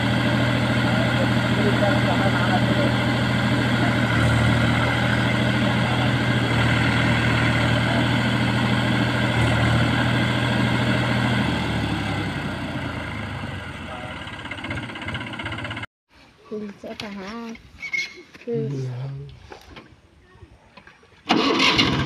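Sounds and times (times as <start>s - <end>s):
diesel tractor engine under load: 0.0s - 15.9s, 21.3s - 22.0s.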